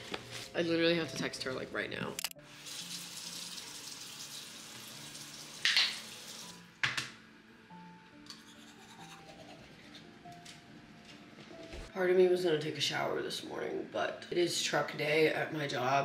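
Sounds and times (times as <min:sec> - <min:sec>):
soft background music: 0:00.0 - 0:16.0
sink tap running: 0:02.5 - 0:07.1
toothbrush scrubbing: 0:08.3 - 0:10.0.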